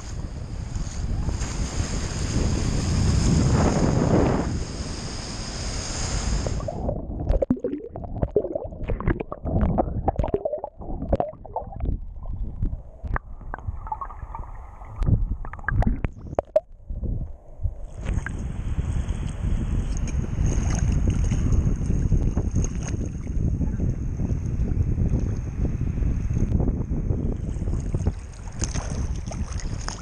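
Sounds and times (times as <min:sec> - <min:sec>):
underwater sloshing and gurgling: 0:06.3 - 0:23.4, 0:27.3 - 0:30.0
underwater clicks and pops: 0:06.7 - 0:14.4, 0:15.0 - 0:16.8
small waves washing: 0:27.4 - 0:30.0.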